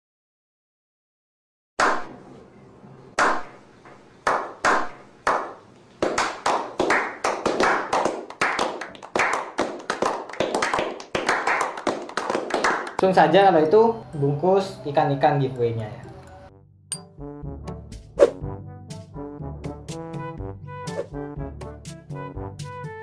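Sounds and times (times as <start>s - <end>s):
slow hand clapping: 3.2s - 3.5s, 4.2s - 13.1s
group applause: 4.3s - 13.4s.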